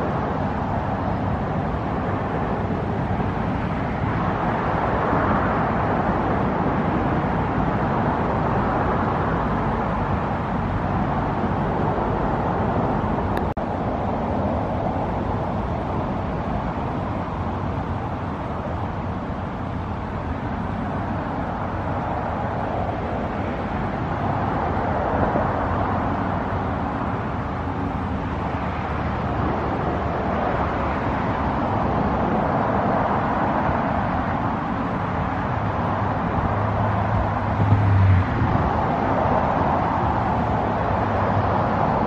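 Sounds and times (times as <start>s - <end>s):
cars passing: 0.0s - 42.0s
deep engine hum: 36.0s - 41.0s.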